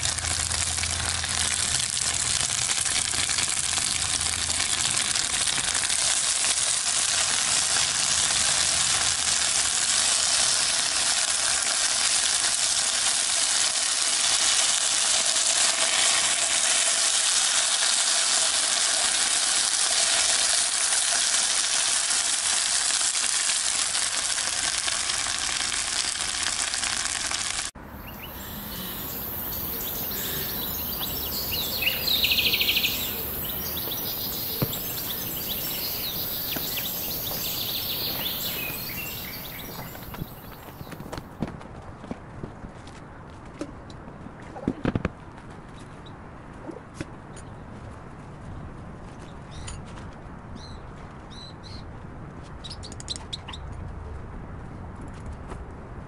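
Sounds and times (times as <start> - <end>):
potatoes sizzling in oil: 0.0 - 41.2.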